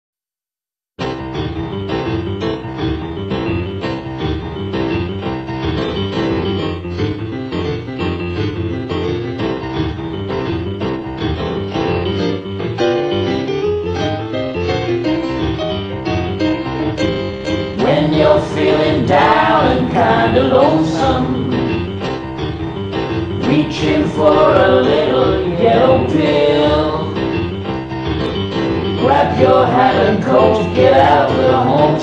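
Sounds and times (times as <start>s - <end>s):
boogie-woogie piano music: 1.0s - 32.0s.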